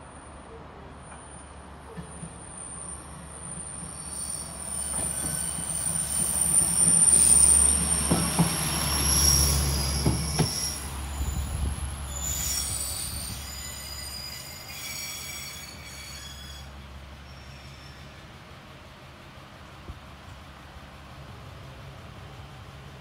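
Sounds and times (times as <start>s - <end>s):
railcar engine hum: 0.0s - 23.0s
high-pitched wheel squeal: 2.7s - 18.3s.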